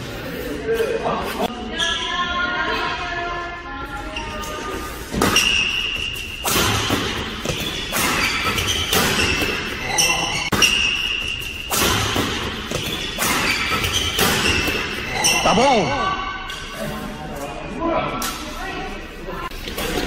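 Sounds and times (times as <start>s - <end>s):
rackets hitting shuttlecock: 5.1s - 15.3s.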